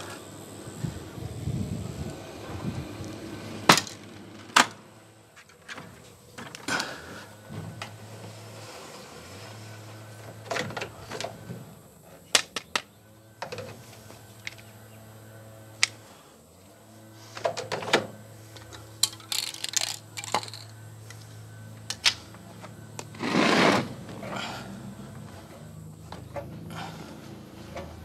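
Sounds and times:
steady low hum: 0.0 - 28.0
short rustling scrapes: 8.0 - 10.1, 23.2 - 24.1.

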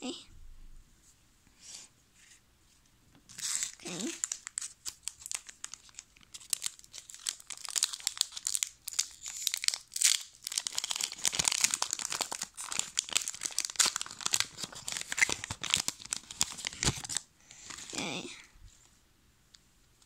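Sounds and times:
cards being shuffled: 3.3 - 5.9.

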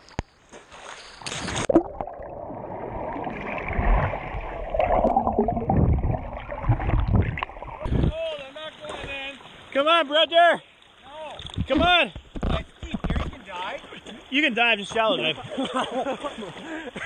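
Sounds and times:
water splash: 0.7 - 8.1
underwater gurgling and rushing water: 1.6 - 8.1.

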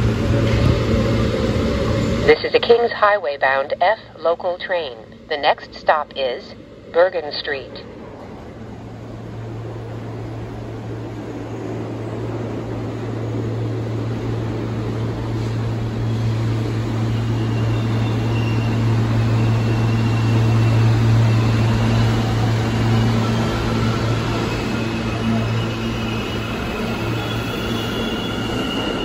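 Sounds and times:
subway train equipment humming: 0.0 - 29.0.

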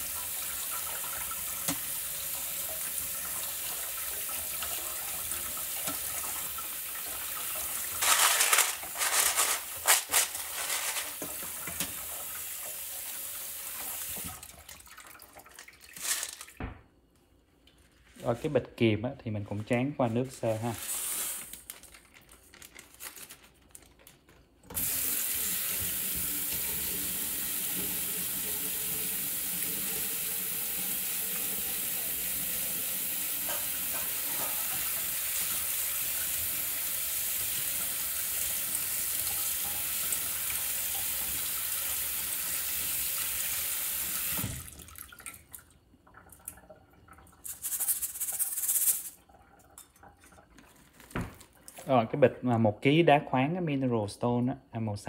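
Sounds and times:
tap water splashing into sink: 0.0 - 8.0, 11.1 - 12.7, 13.6 - 16.8, 44.0 - 47.4.

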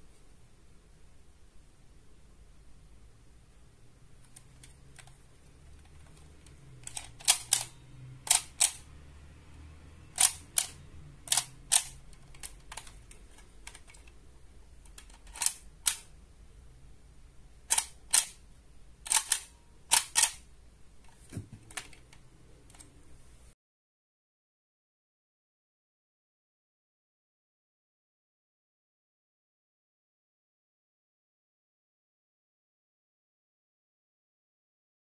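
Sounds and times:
sharp plastic toy clicks: 5.8 - 8.8, 10.1 - 14.2, 14.8 - 16.1, 17.7 - 18.4, 19.0 - 20.5.

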